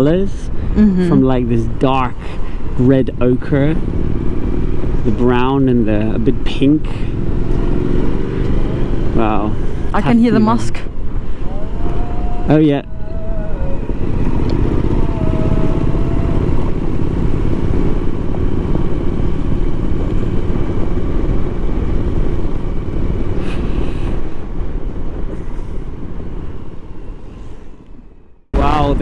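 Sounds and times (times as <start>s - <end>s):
wind rumble: 0.0s - 29.0s
motorcycle engine at low speed: 1.2s - 27.1s
distant call to prayer: 11.4s - 16.8s.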